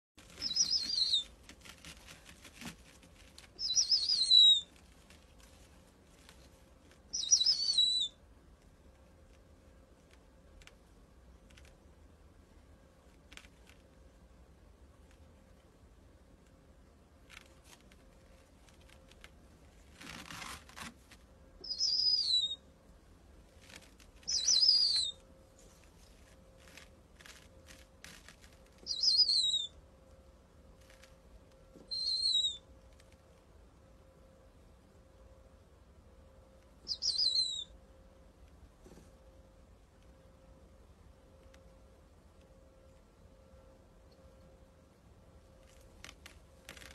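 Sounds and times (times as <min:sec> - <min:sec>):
faint rustling: 0:00.2 - 0:07.1, 0:17.2 - 0:21.6, 0:23.3 - 0:28.9
owl warbling calls: 0:00.4 - 0:01.3, 0:03.6 - 0:04.8, 0:07.1 - 0:08.2, 0:21.6 - 0:22.6, 0:24.2 - 0:25.2, 0:28.8 - 0:29.8, 0:31.8 - 0:32.7, 0:36.9 - 0:37.7.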